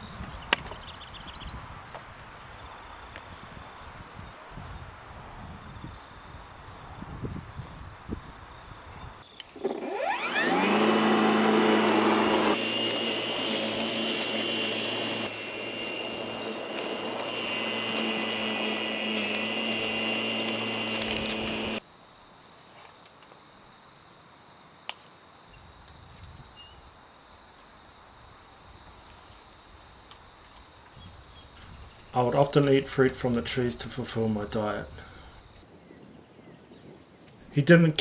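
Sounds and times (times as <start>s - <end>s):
electric lawn mower running: 9.5s - 21.8s.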